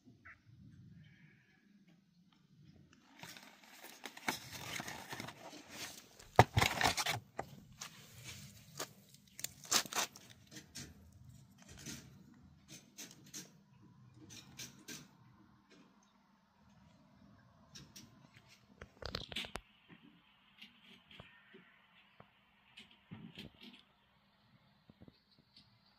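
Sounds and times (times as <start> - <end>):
clicks and scrapes of handling: 2.9 - 13.6
packaging crinkling and rustling: 3.0 - 10.7
cardboard box tearing: 3.2 - 7.4, 8.7 - 10.3.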